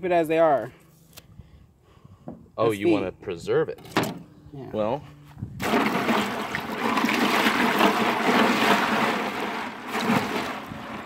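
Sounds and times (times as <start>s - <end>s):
ice water sloshing: 5.6s - 11.0s.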